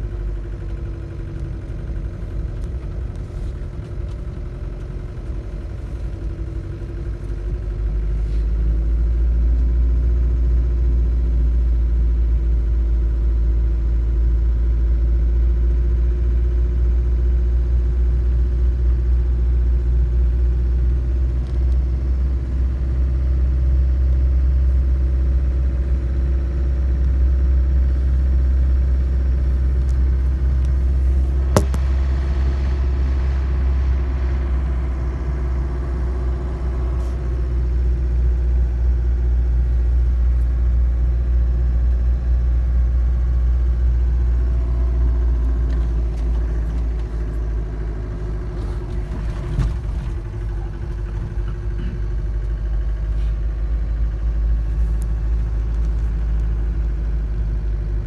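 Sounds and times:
road noise: 0:00.0 - 0:15.1, 0:17.1 - 0:58.0
car engine rumble: 0:00.0 - 0:58.0
sharp click: 0:31.5 - 0:32.0.

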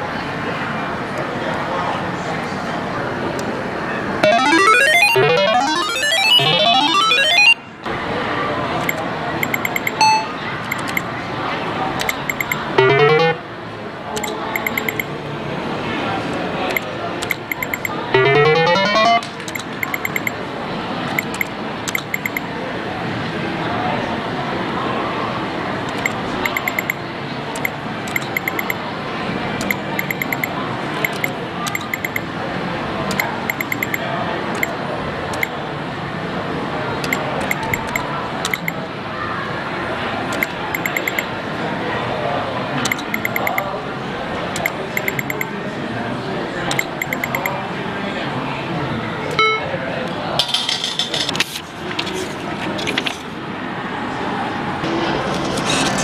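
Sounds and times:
quick electronic beeps: 0:04.2 - 0:07.6, 0:08.8 - 0:11.0, 0:12.0 - 0:13.4, 0:14.2 - 0:15.1, 0:16.7 - 0:20.3, 0:21.2 - 0:22.4, 0:26.0 - 0:27.0, 0:27.6 - 0:28.8, 0:29.6 - 0:30.5, 0:31.1 - 0:32.2, 0:33.1 - 0:34.0, 0:37.1 - 0:38.8, 0:40.4 - 0:41.3, 0:42.9 - 0:43.6, 0:44.6 - 0:45.5, 0:46.7 - 0:47.5
rising electronic tones: 0:04.2 - 0:07.6, 0:12.8 - 0:13.4, 0:18.2 - 0:19.2
casino background din: 0:04.2 - 0:08.0, 0:08.7 - 0:13.5, 0:14.1 - 0:15.3, 0:16.3 - 0:22.6, 0:25.8 - 0:35.7, 0:36.9 - 0:39.0, 0:40.0 - 0:53.6.

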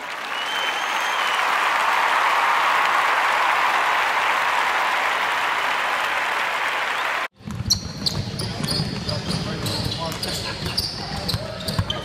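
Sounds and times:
applause: 0:00.0 - 0:07.3
basketball bouncing: 0:07.4 - 0:12.0
sneakers squeaking on floor: 0:07.4 - 0:12.0.

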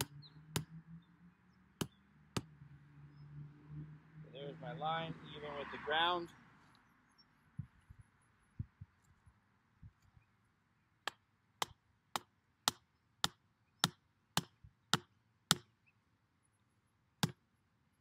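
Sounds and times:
hammer striking wooden stake: 0:00.0 - 0:00.8, 0:01.8 - 0:02.5, 0:11.0 - 0:15.7, 0:17.2 - 0:17.4.

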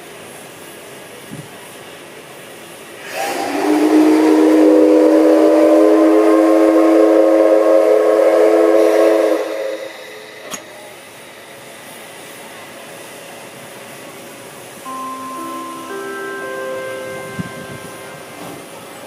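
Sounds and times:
steam locomotive whistle blowing: 0:03.0 - 0:11.5, 0:14.9 - 0:19.0.

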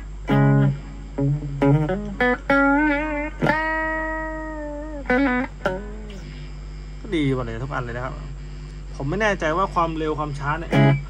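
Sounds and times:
electric guitar with delay: 0:00.0 - 0:06.2, 0:10.7 - 0:11.0.

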